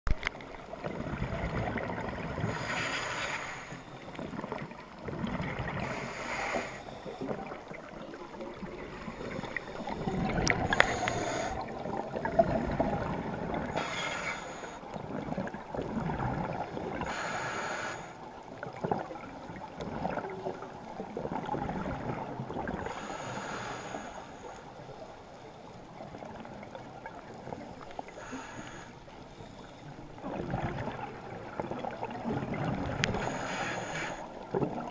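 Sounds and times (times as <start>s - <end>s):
muffled underwater rumble: 0.1s - 34.9s
scuba regulator bubbles hissing: 0.8s - 18.1s, 30.2s - 34.9s.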